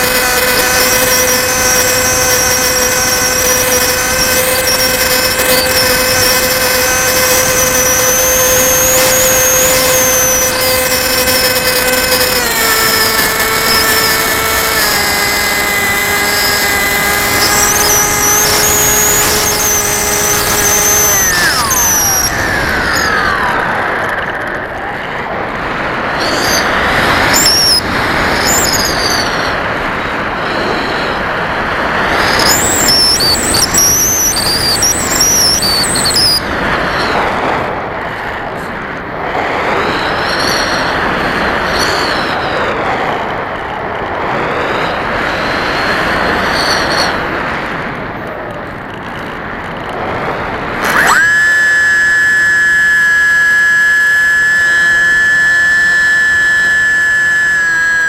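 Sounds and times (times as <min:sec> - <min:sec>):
electric motor whine: 0:00.0 - 0:49.0, 0:49.9 - 0:58.0
airflow rushing past plane: 0:00.0 - 0:58.0
propeller spinning up: 0:00.0 - 0:58.0.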